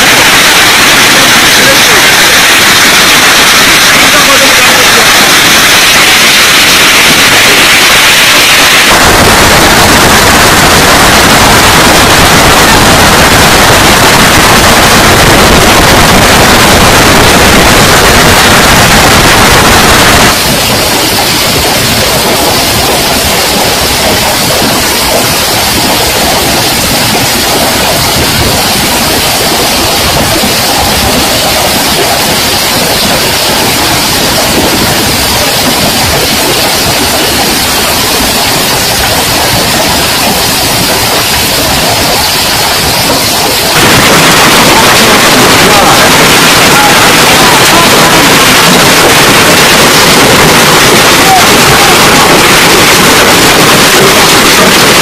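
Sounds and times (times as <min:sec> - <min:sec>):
wind: 0:00.0 - 0:50.2
heavy rain beating down: 0:00.0 - 0:55.0.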